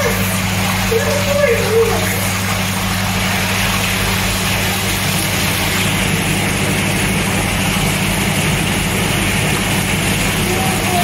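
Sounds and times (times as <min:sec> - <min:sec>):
pump electric hum: 0:00.0 - 0:11.0
water jets churning: 0:00.0 - 0:11.0.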